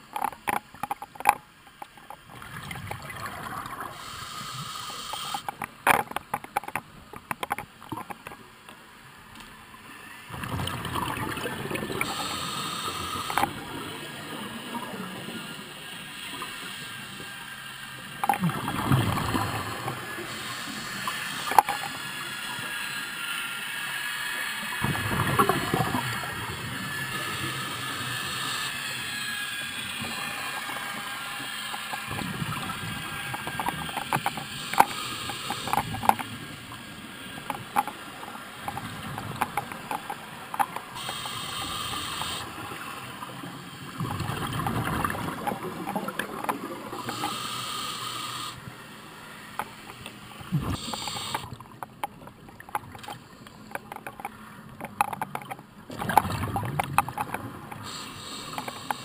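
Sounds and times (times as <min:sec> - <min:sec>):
regulator hissing inhalations: 0:03.9 - 0:05.5, 0:12.0 - 0:13.5, 0:40.9 - 0:42.5, 0:47.0 - 0:48.6, 0:50.6 - 0:51.5, 0:57.8 - 0:59.0
exhaled bubbles popping: 0:10.6 - 0:12.1, 0:55.9 - 0:57.3.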